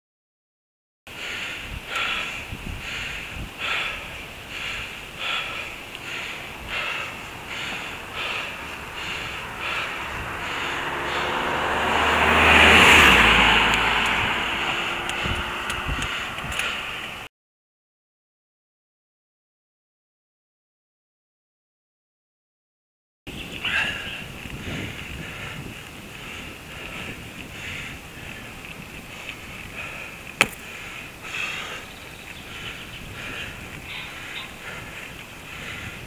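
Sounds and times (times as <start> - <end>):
heavy rhythmic breathing: 1.1 - 17.3, 23.6 - 36.0
wind rumble on microphone: 1.4 - 17.3, 23.3 - 36.0
motor vehicle passing: 4.4 - 17.3.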